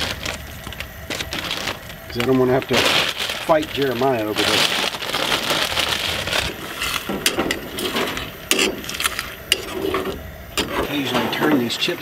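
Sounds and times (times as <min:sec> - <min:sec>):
metal spatula scraping frying pan: 0:06.6 - 0:11.7.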